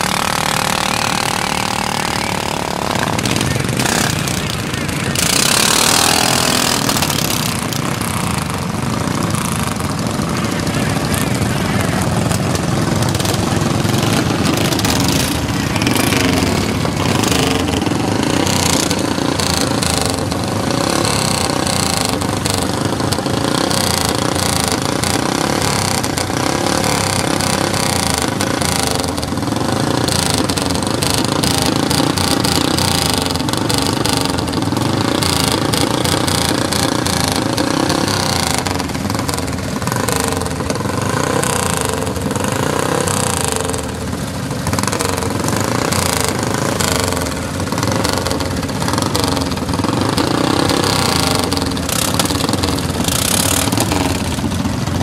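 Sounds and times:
lawn mower engines idling: 0.0 - 55.0.

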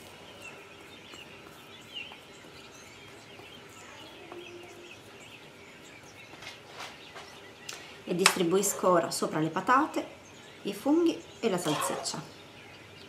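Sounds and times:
faint bird chirps: 0.0 - 8.0.

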